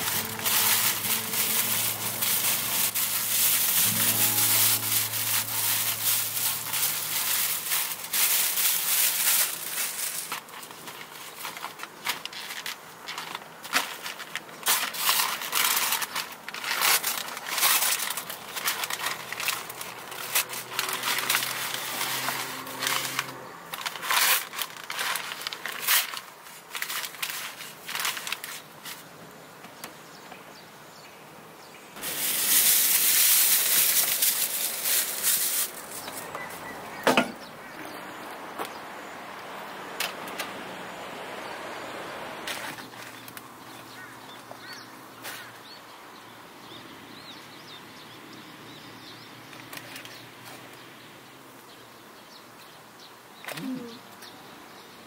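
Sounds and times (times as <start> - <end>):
plastic bag crinkling: 0.0 - 28.8, 32.0 - 36.7
paper bag rustling: 0.0 - 29.1, 32.0 - 37.0.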